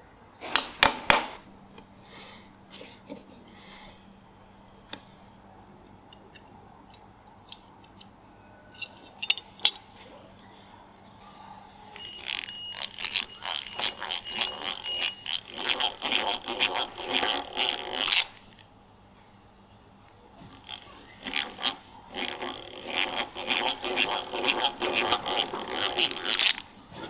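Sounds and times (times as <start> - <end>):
thin squeal: 11.3 - 16.9
drill bit scraping wood: 12.0 - 18.6, 20.5 - 26.7
hand drill gear chatter: 12.0 - 18.6, 20.5 - 26.7.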